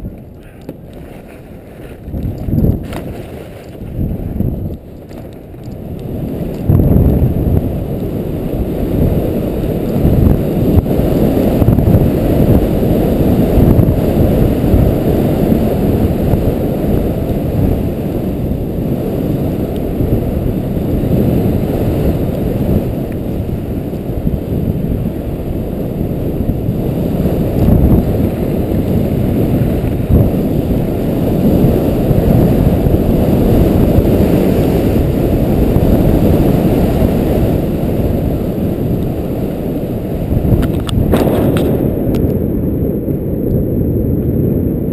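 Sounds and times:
wind rushing over microphone: 0:00.0 - 0:44.9
skis sliding over snow: 0:00.1 - 0:13.5.

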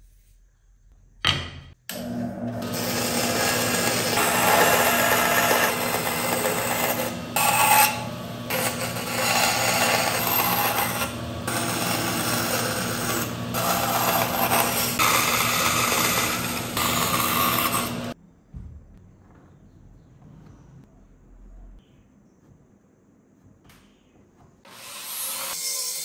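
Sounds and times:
bandsaw motor hum: 0:01.9 - 0:18.2
saw blade cutting wood: 0:02.6 - 0:18.2, 0:24.7 - 0:26.0.

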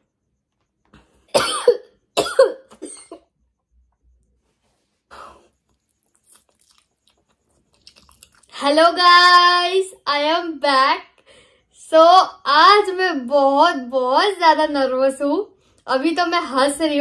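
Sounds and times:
woman coughing: 0:01.3 - 0:03.3.

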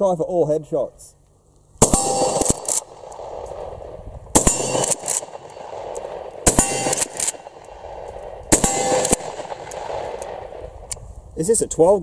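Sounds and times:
shotgun shots: 0:01.8 - 0:10.9
shotgun lever clicks: 0:02.4 - 0:03.2, 0:04.8 - 0:06.1
slug ringing on steel target: 0:04.4 - 0:05.6, 0:06.5 - 0:07.6.

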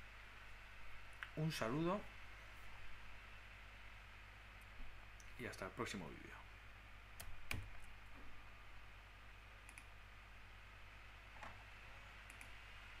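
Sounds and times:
low electrical hum: 0:00.0 - 0:13.0
faint clicks: 0:09.6 - 0:09.9, 0:12.2 - 0:12.6.

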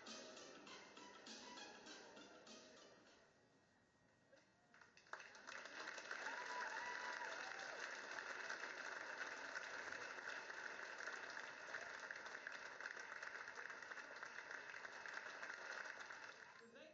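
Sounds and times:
audience applauding: 0:04.7 - 0:16.6.

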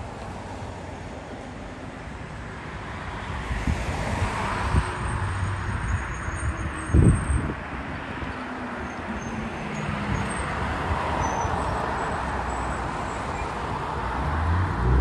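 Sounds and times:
tyres on road: 0:00.0 - 0:15.0
bus engine running: 0:14.2 - 0:15.0.

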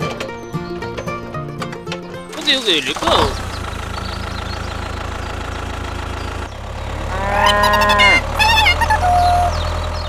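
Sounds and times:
tractor engine hum: 0:00.0 - 0:10.0
cow mooing: 0:07.0 - 0:08.4
wavering animal call: 0:07.0 - 0:09.6.

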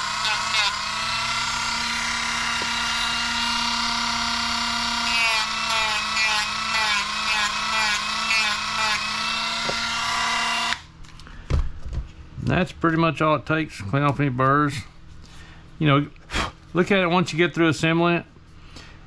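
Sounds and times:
rotary tool sanding plastic: 0:00.0 - 0:10.8.

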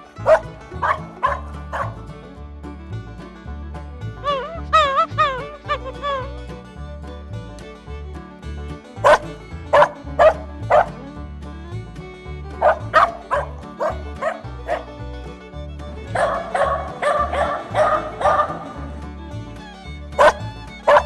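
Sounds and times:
background music: 0:00.0 - 0:21.0
dog barking: 0:00.2 - 0:02.0, 0:09.0 - 0:11.0, 0:12.6 - 0:14.9, 0:16.1 - 0:18.8, 0:20.2 - 0:21.0.

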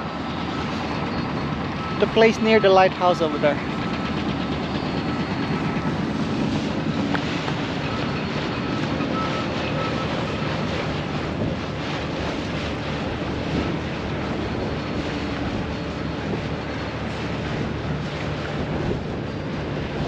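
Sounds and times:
boat diesel engine running: 0:00.0 - 0:20.0
wind buffeting microphone: 0:00.0 - 0:20.0.

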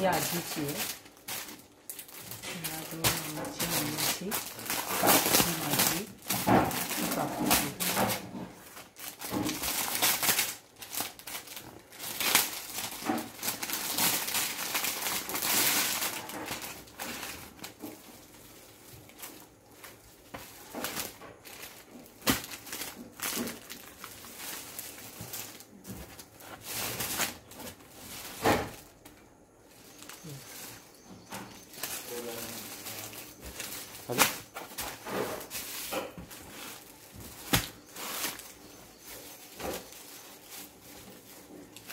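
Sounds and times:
plastic wrappers crinkling: 0:00.0 - 0:41.9.

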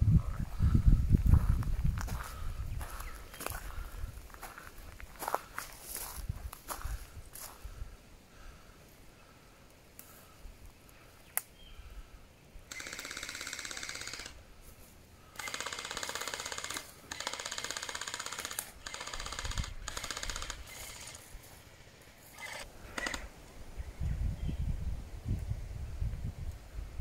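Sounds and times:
gel blaster firing bursts: 0:12.7 - 0:14.4, 0:15.4 - 0:21.2.

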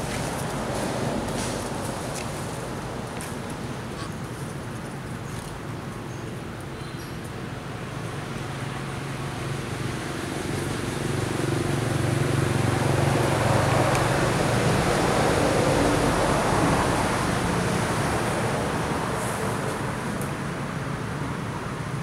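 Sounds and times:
vehicle engine and tyres passing: 0:00.0 - 0:05.9, 0:07.6 - 0:22.0.

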